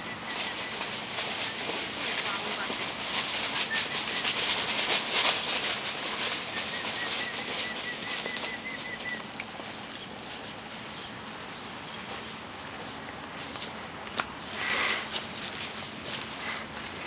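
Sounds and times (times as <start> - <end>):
dogs running through dry leaves: 0.0 - 12.6, 14.4 - 17.0.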